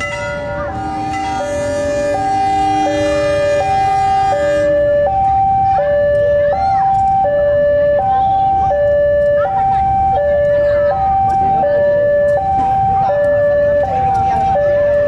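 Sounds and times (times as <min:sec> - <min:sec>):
two-tone hi-lo siren: 0:00.0 - 0:15.0
steady buzzy tone: 0:00.2 - 0:04.8.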